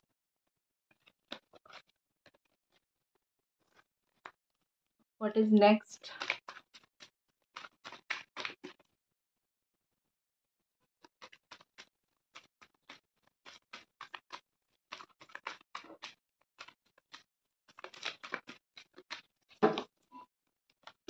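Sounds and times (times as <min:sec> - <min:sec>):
cards being shuffled: 0:06.0 - 0:06.9, 0:07.6 - 0:08.8, 0:12.4 - 0:19.8.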